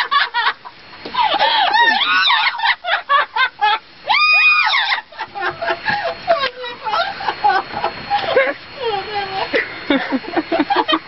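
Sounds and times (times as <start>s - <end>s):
parrots mimicking laughter: 1.1s - 6.1s.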